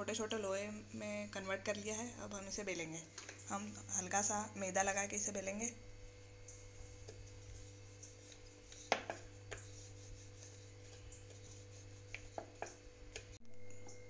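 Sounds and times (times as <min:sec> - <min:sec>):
rolling pin rolling dough: 0:05.4 - 0:14.0
rolling pin knocking on board: 0:08.9 - 0:09.6
low hum: 0:13.2 - 0:14.0.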